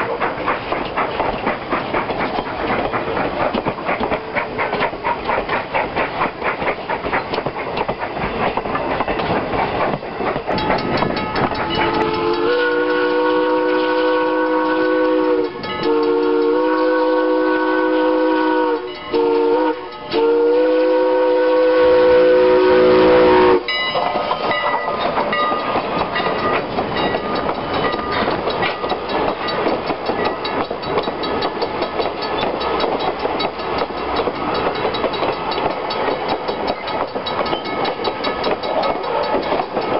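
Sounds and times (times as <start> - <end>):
train wheels clacking over rail joints: 0.0 - 39.9
steam whistle blasts: 11.7 - 23.7.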